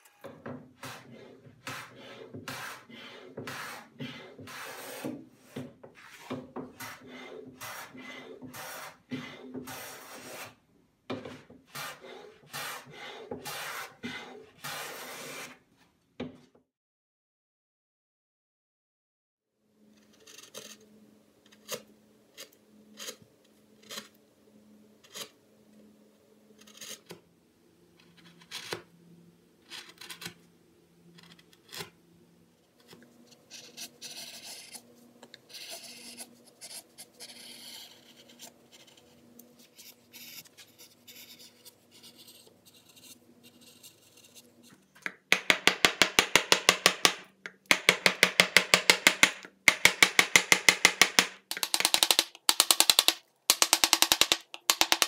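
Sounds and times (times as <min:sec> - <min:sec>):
carving gouge cutting wood: 0:00.8 - 0:10.6, 0:11.7 - 0:15.6, 0:33.5 - 0:44.5.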